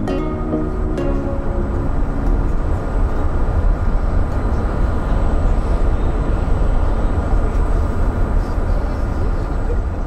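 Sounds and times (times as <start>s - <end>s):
ship engine low rumble: 0.0s - 10.0s.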